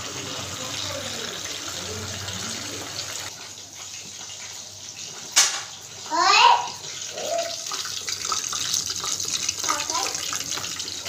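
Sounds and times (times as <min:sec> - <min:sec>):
chicken deep-frying in oil: 0:00.0 - 0:11.0
high-pitched voice: 0:06.1 - 0:07.6.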